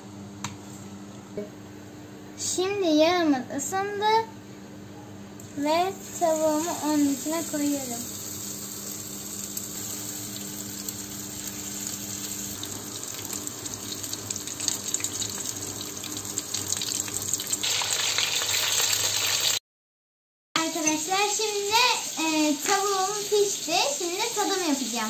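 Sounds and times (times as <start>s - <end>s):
deep-frying sizzle with crackles: 5.4s - 19.6s, 20.6s - 25.0s.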